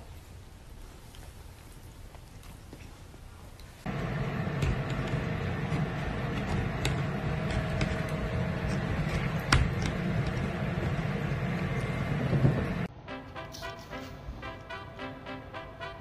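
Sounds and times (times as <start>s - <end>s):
low rumbling noise: 3.8s - 13.0s.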